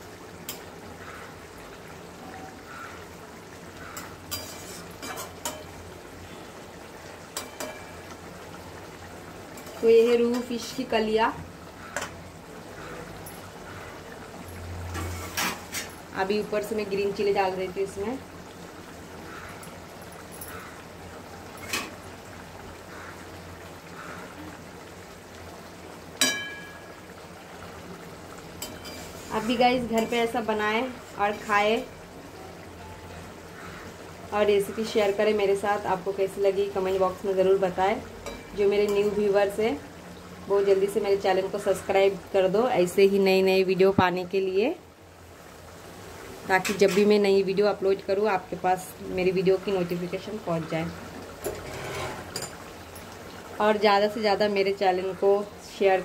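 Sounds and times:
gravy bubbling in pan: 0:00.0 - 0:56.0
metal spatula clanging on pan: 0:04.0 - 0:05.7, 0:07.3 - 0:08.0, 0:26.2 - 0:26.9, 0:38.2 - 0:39.2, 0:51.4 - 0:52.6
spatula knocking and scraping pan: 0:51.4 - 0:52.6.

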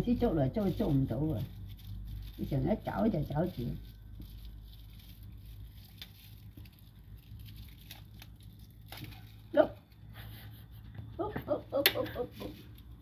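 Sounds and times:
tinsel rustling and crinkling: 0:00.0 - 0:13.0.

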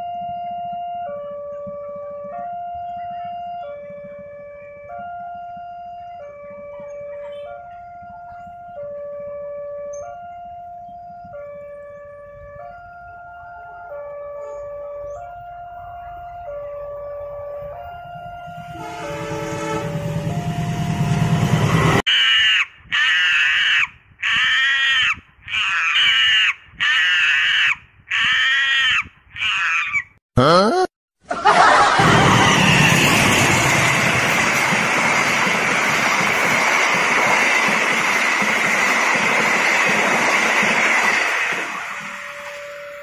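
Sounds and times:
passenger train passing: 0:05.0 - 0:22.0, 0:31.4 - 0:43.0
comic monkey screeching calls: 0:22.1 - 0:30.1.

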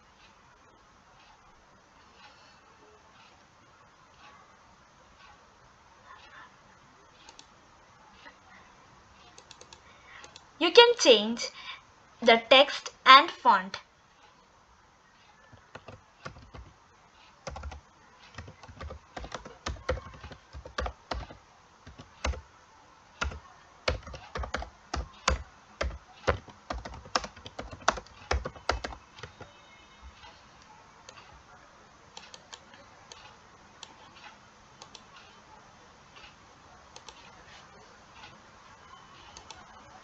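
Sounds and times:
computer keyboard typing: 0:09.3 - 0:10.5, 0:15.5 - 0:16.8, 0:17.4 - 0:22.4, 0:23.2 - 0:29.5.

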